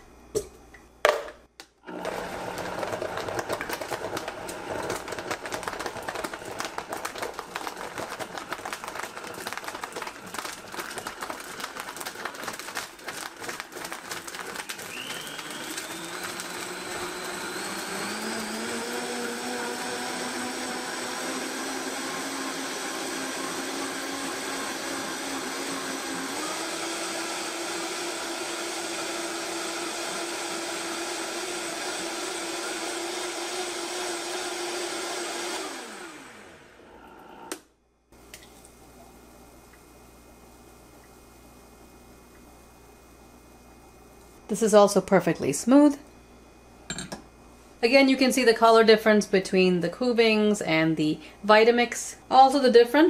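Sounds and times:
blender crushing ice: 1.1s - 37.7s.

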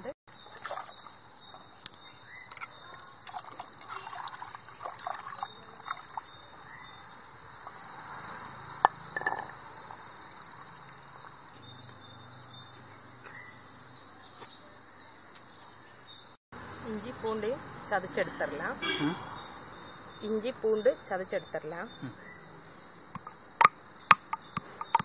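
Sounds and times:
water splashing and trickling: 0.3s - 11.6s
shallots clicking and knocking: 23.1s - 25.0s.

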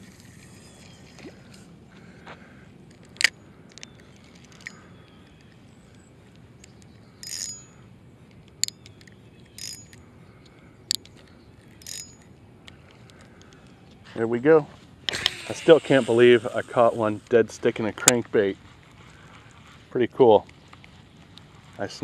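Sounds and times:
mechanical reel noise: 0.0s - 1.6s, 7.2s - 7.8s, 9.4s - 10.0s, 11.6s - 12.3s, 15.1s - 18.2s
fishing reel clicks: 6.7s - 7.7s, 8.5s - 10.0s, 10.9s - 12.3s, 15.1s - 17.3s.

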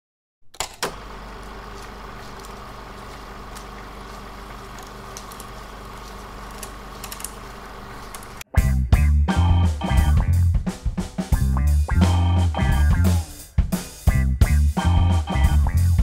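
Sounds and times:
vinyl surface hum and hiss: 1.0s - 8.4s
vinyl crackles: 1.0s - 8.5s.

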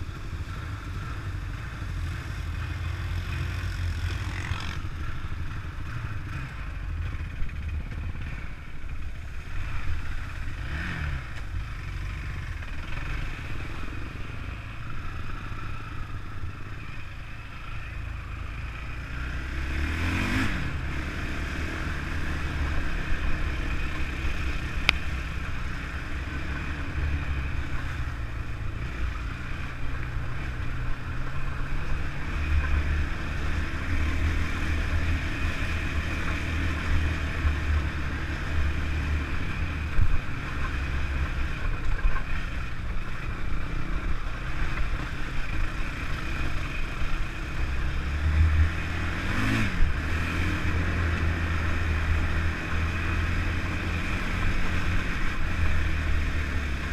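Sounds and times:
quad bike engine running: 0.0s - 56.9s.

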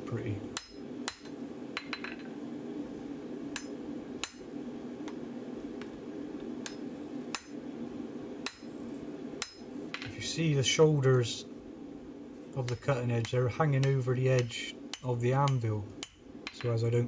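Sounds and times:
hammer striking steel on anvil: 0.6s - 2.2s, 7.3s - 7.6s, 9.4s - 10.1s, 12.6s - 16.8s.

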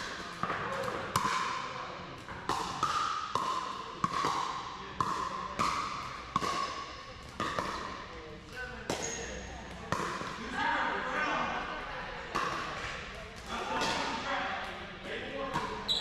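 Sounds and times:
paddles hitting pickleball: 0.0s - 8.2s, 8.9s - 10.5s, 12.3s - 14.2s.

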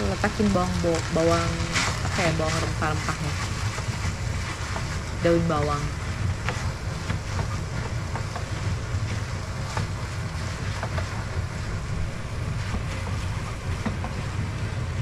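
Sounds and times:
spatula scraping frying pan: 1.0s - 11.8s.

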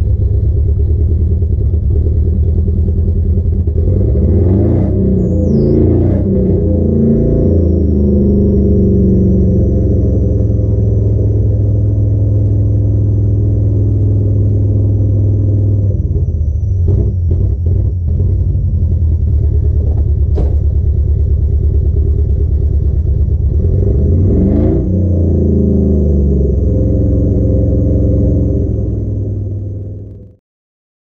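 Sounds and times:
truck engine idling: 0.0s - 24.2s.

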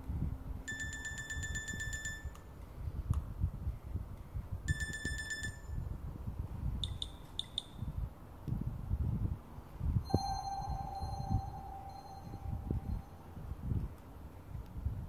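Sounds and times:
fast-pulsing alarm beep: 10.1s - 13.3s.

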